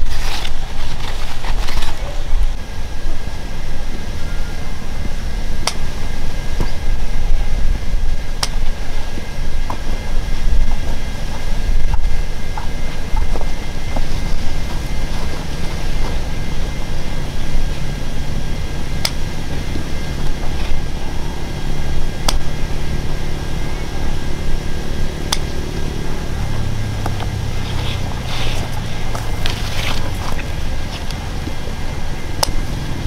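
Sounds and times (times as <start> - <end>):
engine running: 0.0 - 33.0.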